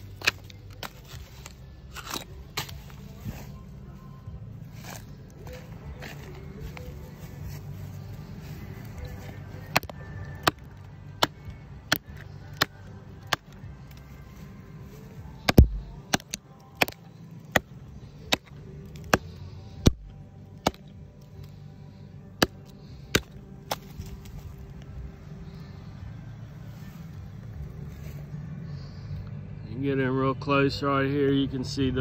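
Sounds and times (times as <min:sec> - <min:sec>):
hatchet chopping wood: 0:00.2 - 0:01.1, 0:09.7 - 0:13.6, 0:15.4 - 0:17.7, 0:18.3 - 0:21.0, 0:22.4 - 0:24.4.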